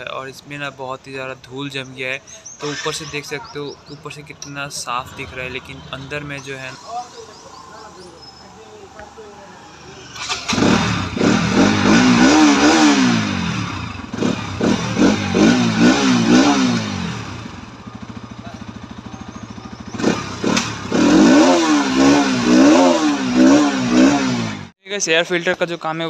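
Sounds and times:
motorcycle engine revving: 2.4s - 24.8s.

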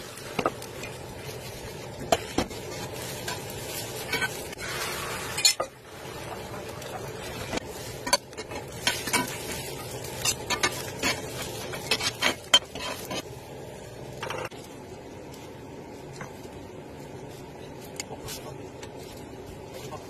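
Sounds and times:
omelette sizzling: 0.0s - 20.0s
metal spatula scraping a skillet: 8.0s - 13.2s.

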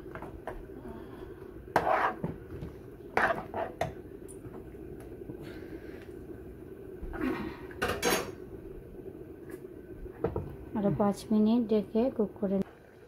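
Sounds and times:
steady low hum: 0.0s - 13.0s
metal ladle scraping a frying pan: 1.7s - 2.3s.

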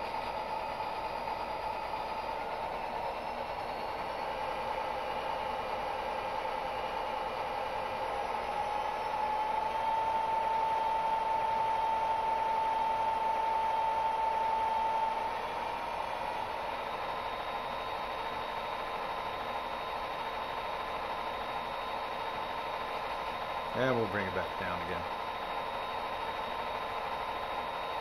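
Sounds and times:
diesel locomotive engine drone: 0.0s - 28.0s.

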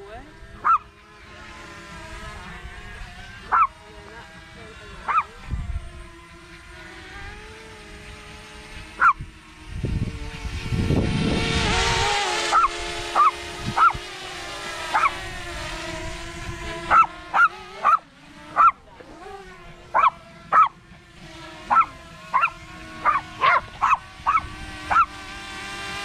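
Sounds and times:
drone propellers humming: 0.0s - 26.0s
dog barking: 0.6s - 0.9s, 3.5s - 3.7s, 5.1s - 5.4s, 12.5s - 14.0s, 14.9s - 15.1s, 16.9s - 18.0s, 18.6s - 18.8s, 19.9s - 20.8s, 21.7s - 25.1s.

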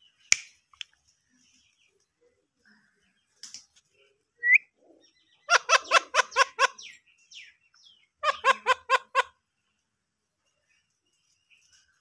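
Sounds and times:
parakeet calling: 5.5s - 6.9s, 8.2s - 9.3s.

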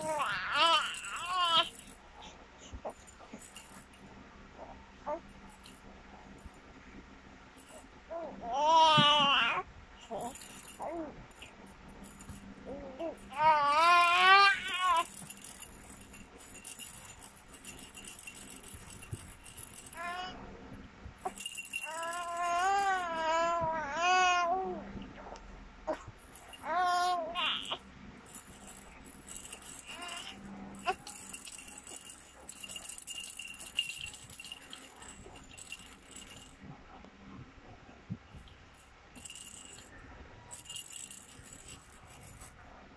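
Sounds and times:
plastic rattle shaking: 0.0s - 4.1s, 5.3s - 6.6s, 7.5s - 7.9s, 10.0s - 20.4s, 21.2s - 23.6s, 26.0s - 36.7s, 38.3s - 42.6s.

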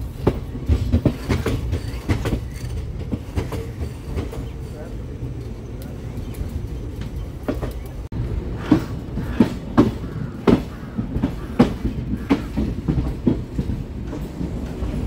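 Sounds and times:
low rumble of train coach: 0.0s - 15.0s
wheels clacking over rail joints: 0.0s - 15.0s.

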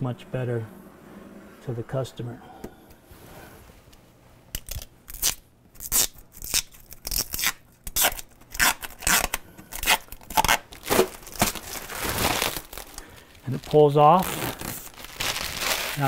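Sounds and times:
plastic film ripping off: 4.5s - 16.0s.

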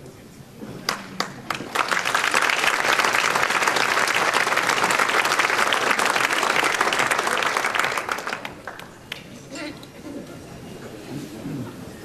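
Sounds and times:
audience applauding: 0.9s - 9.1s.

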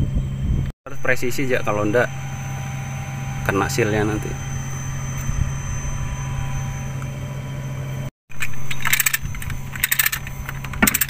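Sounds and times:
low machine hum: 0.0s - 11.0s
lifting chain clinking: 8.4s - 11.0s.

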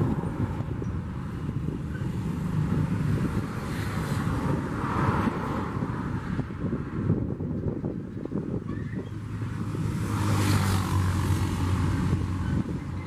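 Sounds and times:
wind noise on microphone: 0.0s - 13.0s
freight wagons rumbling on rails: 11.0s - 13.0s.

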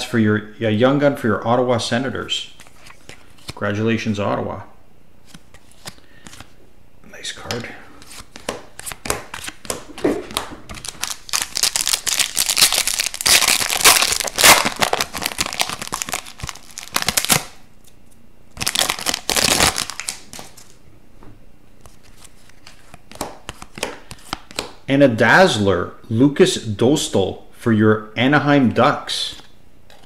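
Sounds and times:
foil pack crinkling: 10.7s - 17.6s, 18.6s - 20.8s.

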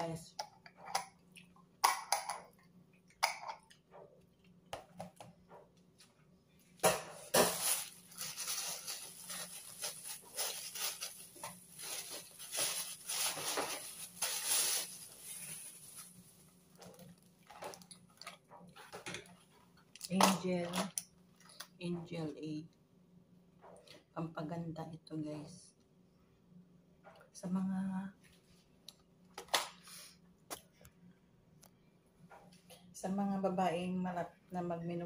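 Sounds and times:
plastic bag crinkling: 7.3s - 18.3s.

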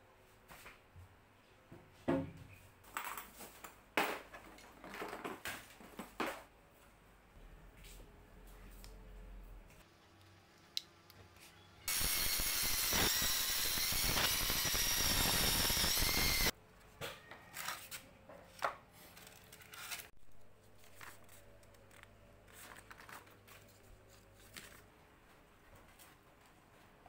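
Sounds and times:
circular saw cutting plywood: 11.9s - 16.5s.

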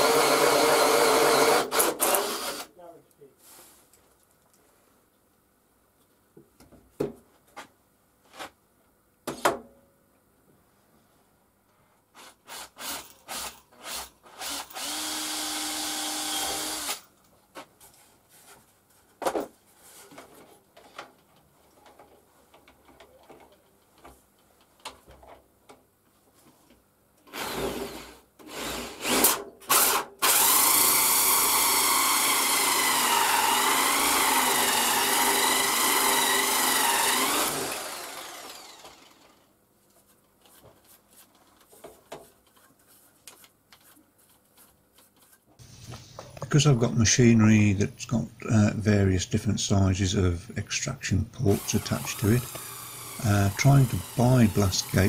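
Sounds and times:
router motor cutting wood: 14.4s - 17.0s, 29.8s - 39.4s, 51.5s - 55.0s.

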